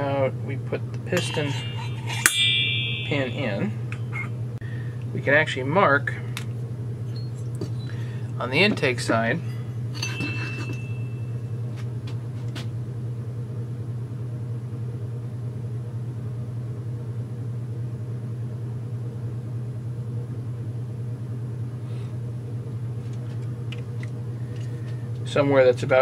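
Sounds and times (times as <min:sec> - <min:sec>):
machine humming: 0:00.0 - 0:12.4.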